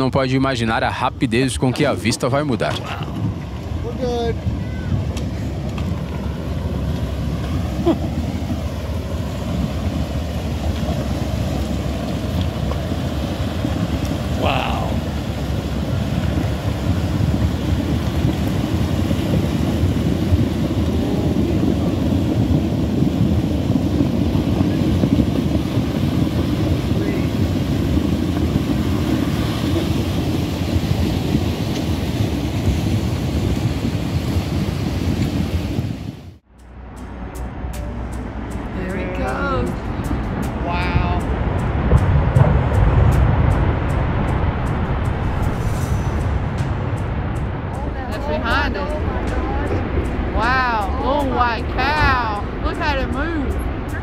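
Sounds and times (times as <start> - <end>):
wind buffeting microphone: 0.0 - 36.4, 37.5 - 54.0
low rumbling noise: 0.0 - 54.0.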